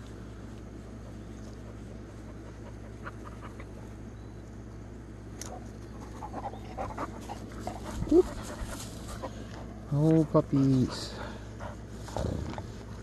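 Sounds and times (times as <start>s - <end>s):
low background hum: 0.0s - 13.0s
dog panting: 1.6s - 3.9s, 5.9s - 12.4s.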